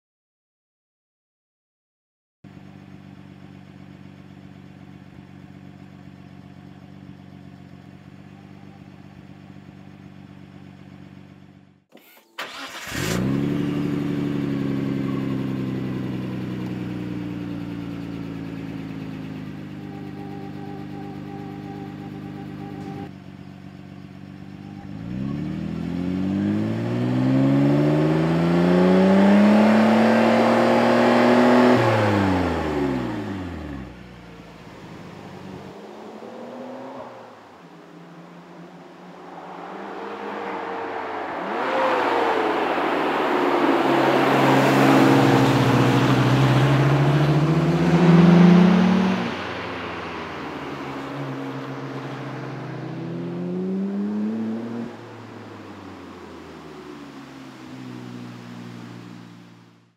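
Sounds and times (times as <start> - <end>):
car engine idling and revving: 2.4 - 59.9.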